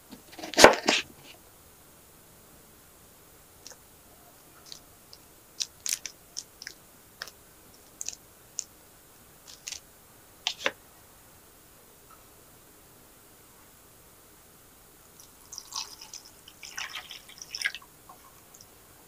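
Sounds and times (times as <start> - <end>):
plastic bags crinkling: 4.6 - 8.2, 9.5 - 9.8.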